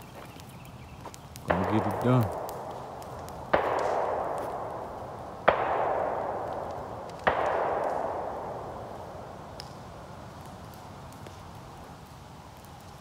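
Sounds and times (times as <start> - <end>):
distant gunshots with rolling echo: 1.4 - 10.5.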